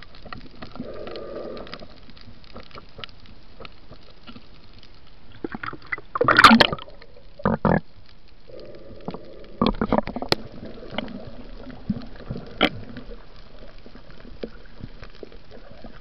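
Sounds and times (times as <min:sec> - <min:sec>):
crackle of small clicks underwater: 0:00.0 - 0:16.0
rush of bubbles: 0:05.4 - 0:07.0.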